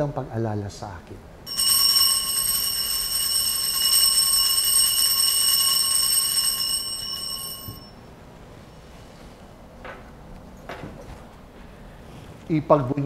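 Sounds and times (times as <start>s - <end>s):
altar bell ringing: 1.5s - 8.1s.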